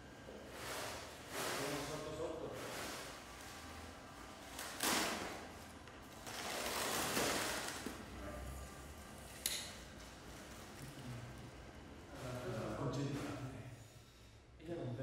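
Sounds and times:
packing material rustling and tearing: 4.4 - 8.1.

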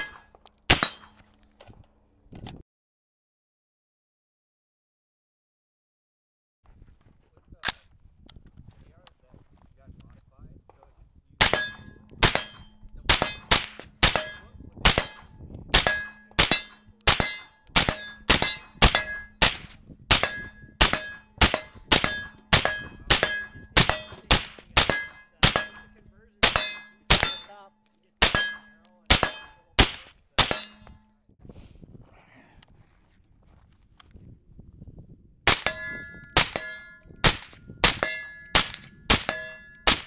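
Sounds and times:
suppressed rifle firing: 13.1 - 27.4, 35.5 - 40.0.

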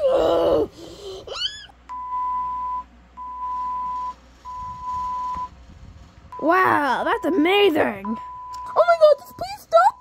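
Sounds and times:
squeaky voice crying out: 1.3 - 1.8
censor bleeps: 1.9 - 5.5, 8.0 - 10.0.

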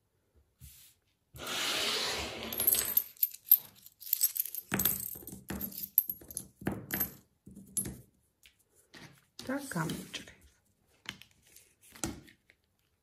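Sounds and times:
steel washers jingling: 2.5 - 7.2.

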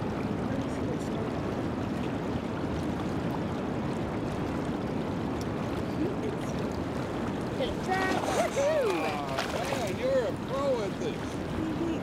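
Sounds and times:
river current rushing: 4.3 - 12.0.

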